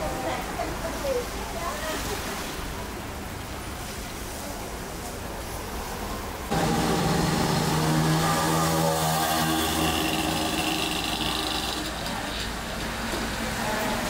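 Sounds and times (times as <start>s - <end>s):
vehicle engine humming: 6.5s - 13.0s
cars driving past: 6.5s - 14.0s.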